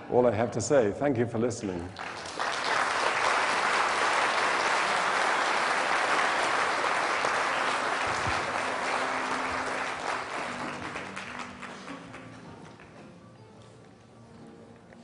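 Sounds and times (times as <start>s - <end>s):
audience applauding: 2.0s - 12.9s.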